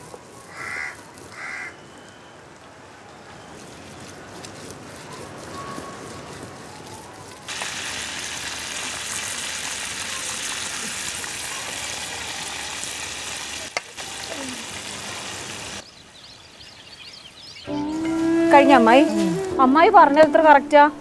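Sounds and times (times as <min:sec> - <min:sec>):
fish sizzling in hot oil: 0:07.5 - 0:15.8.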